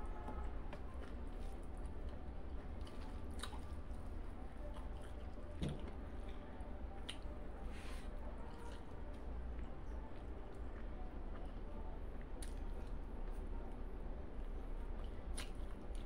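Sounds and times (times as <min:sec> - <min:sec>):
steady low hum: 0:00.0 - 0:16.0
wet chewing: 0:00.3 - 0:05.9.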